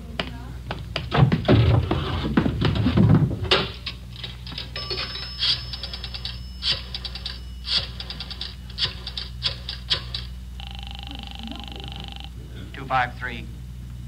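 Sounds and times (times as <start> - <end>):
pulsing telephone ringing tone: 4.8 - 9.5, 10.1 - 12.4.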